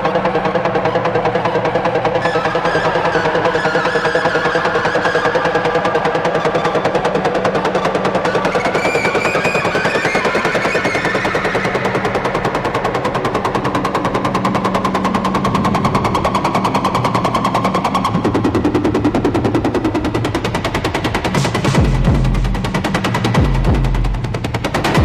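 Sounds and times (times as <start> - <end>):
electronic music pulse: 0.0 - 25.0.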